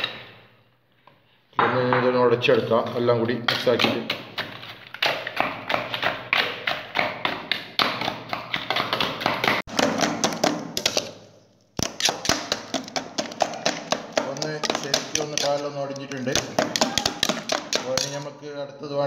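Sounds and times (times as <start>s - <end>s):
metal spoon knocking steel tumbler: 11.8s - 18.2s.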